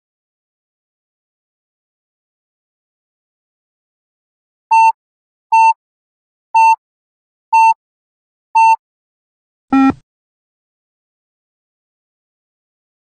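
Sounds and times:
short electronic beeps: 0:04.7 - 0:05.0, 0:05.6 - 0:05.8, 0:06.6 - 0:06.8, 0:07.6 - 0:07.8, 0:08.6 - 0:08.8, 0:09.7 - 0:10.0.

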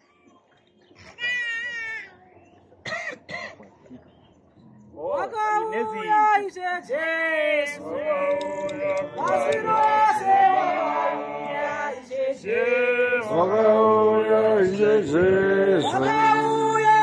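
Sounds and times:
men singing a hymn: 0:07.6 - 0:17.0.

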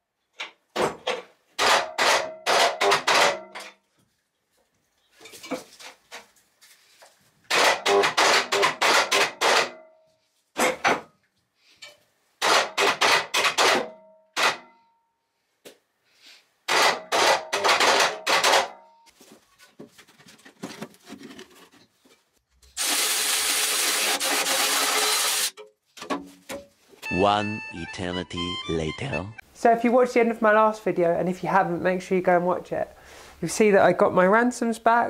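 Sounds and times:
power tool running: 0:22.8 - 0:25.5.

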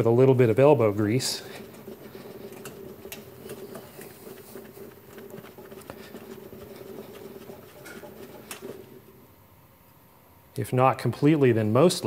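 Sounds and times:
towel rubbing on steel panel: 0:01.4 - 0:09.0.

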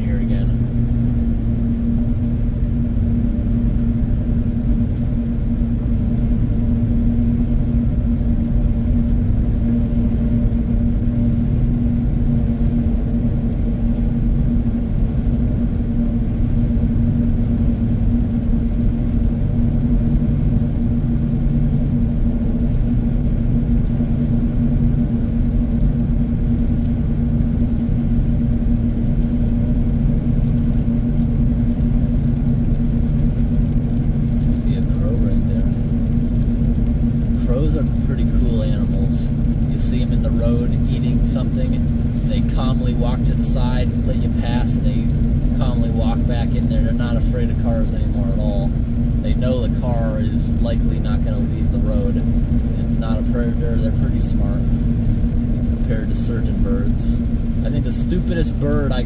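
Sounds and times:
constant hum: 0:00.0 - 0:59.0
vehicle driving on wet road: 0:00.0 - 0:59.0.

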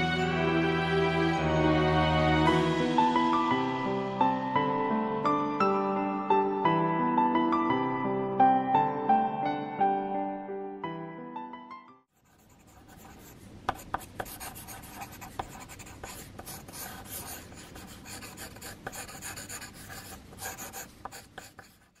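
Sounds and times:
pencil scratching on paper: 0:12.2 - 0:22.0.

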